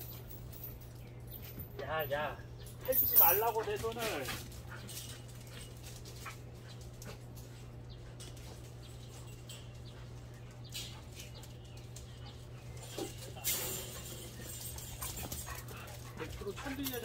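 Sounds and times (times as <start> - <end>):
light clicks of dogs moving: 0.0 - 17.0
steady low hum: 0.0 - 17.0
dogs squabbling: 4.4 - 17.0.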